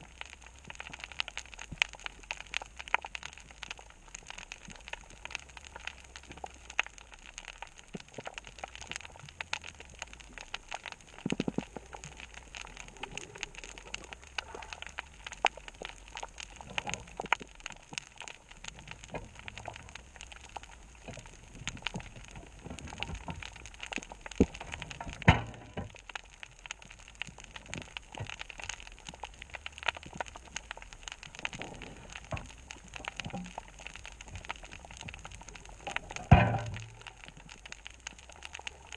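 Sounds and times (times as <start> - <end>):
snapping shrimp clicks underwater: 0.0 - 38.9
underwater knocks: 25.0 - 26.0, 36.1 - 37.1.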